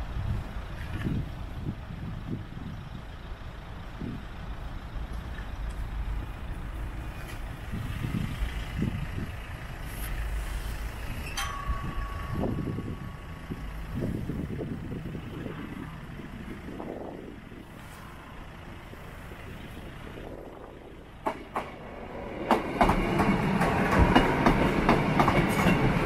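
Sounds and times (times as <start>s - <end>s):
traffic rumble: 0.0s - 26.0s
steady high tone: 11.2s - 13.9s.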